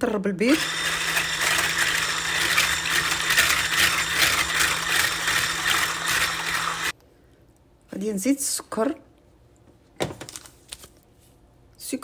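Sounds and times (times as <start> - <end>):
stick blender motor hum: 0.6 - 6.9.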